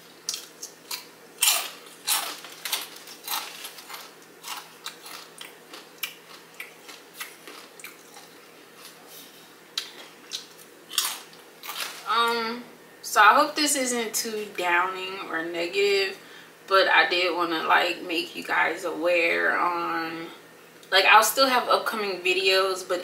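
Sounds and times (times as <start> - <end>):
chips crunching: 0.2 - 9.0, 9.8 - 12.1.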